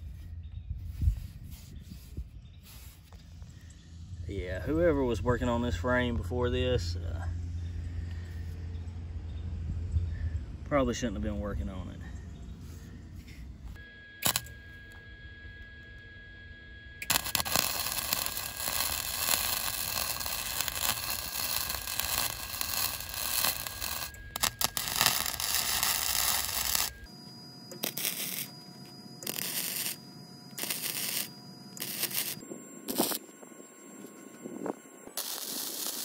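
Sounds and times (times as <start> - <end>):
welder arc crackling: 14.2 - 15.0, 17.0 - 27.1, 27.7 - 28.6, 29.2 - 33.3, 34.1 - 36.0.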